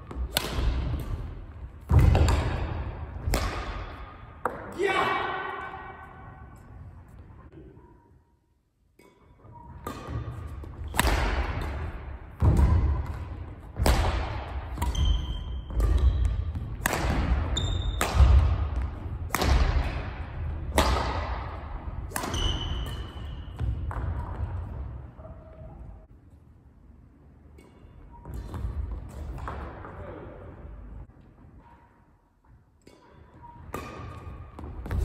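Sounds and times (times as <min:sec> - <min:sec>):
racket striking shuttlecock: 0:00.0 - 0:04.8, 0:08.9 - 0:24.8, 0:32.8 - 0:35.0.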